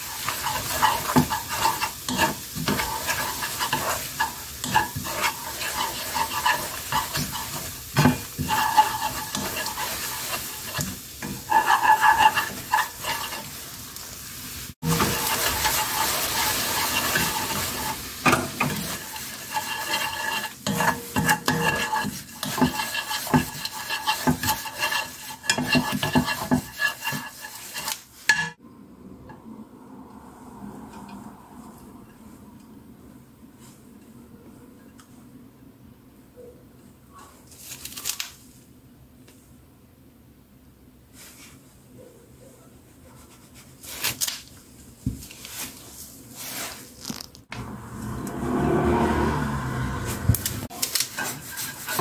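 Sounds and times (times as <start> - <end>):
sauce bubbling and sizzling: 0.0 - 28.5
wooden spatula scraping a pan: 0.0 - 28.6, 45.1 - 47.0, 47.6 - 52.0.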